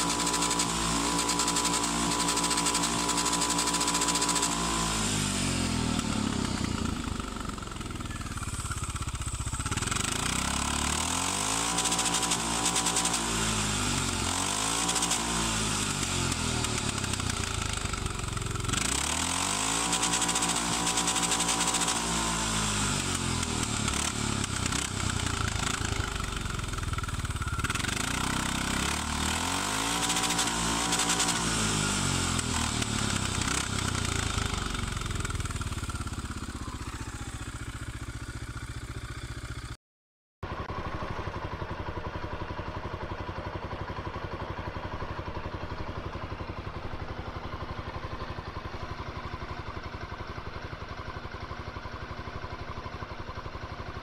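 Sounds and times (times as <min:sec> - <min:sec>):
atv engine revving: 0:00.0 - 0:39.8.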